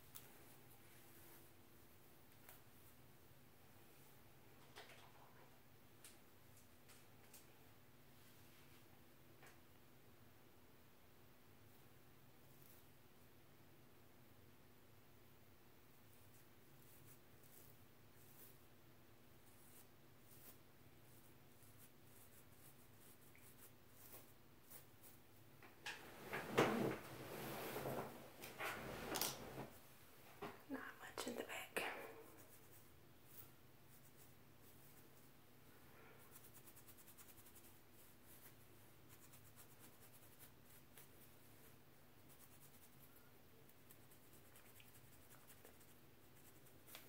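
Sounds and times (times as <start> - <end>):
comb scratching scalp: 16.1 - 18.7, 19.4 - 25.2, 32.2 - 35.3, 36.2 - 47.0.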